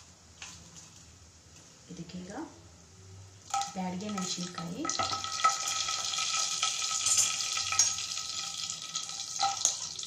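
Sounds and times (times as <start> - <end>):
spices crackling in hot oil: 3.4 - 10.0.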